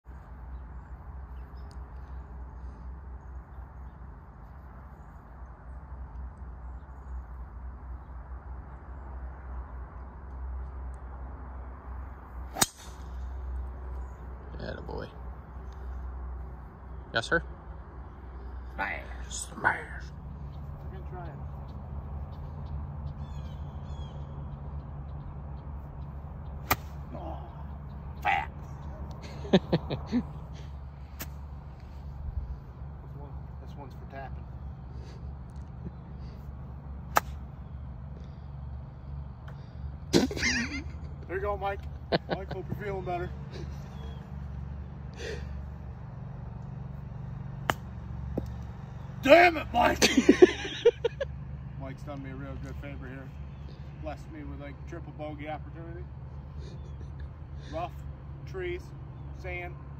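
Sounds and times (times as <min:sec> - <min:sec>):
golf club hitting ball: 0:12.5 - 0:13.2, 0:26.6 - 0:27.1, 0:37.1 - 0:37.5, 0:47.6 - 0:48.6.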